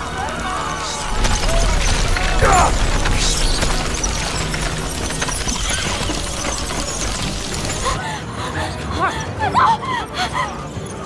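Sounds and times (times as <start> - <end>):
rats scurrying and scrabbling: 0.0 - 8.0.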